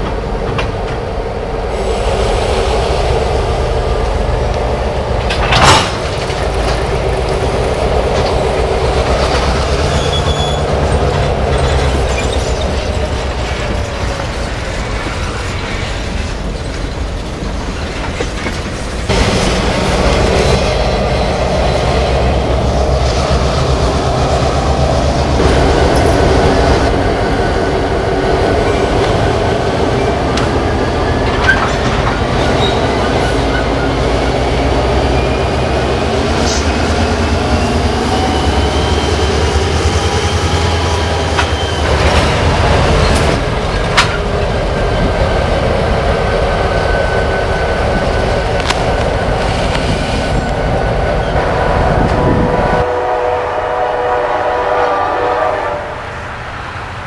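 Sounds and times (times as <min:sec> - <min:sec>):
freight train rumbling: 0:00.0 - 0:57.0
train wheel squeal: 0:09.2 - 0:17.0, 0:29.9 - 0:51.5.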